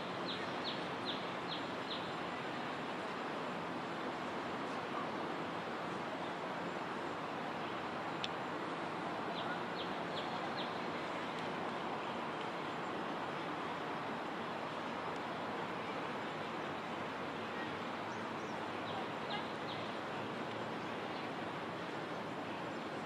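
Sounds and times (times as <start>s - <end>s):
outdoor background hiss: 0.0s - 23.0s.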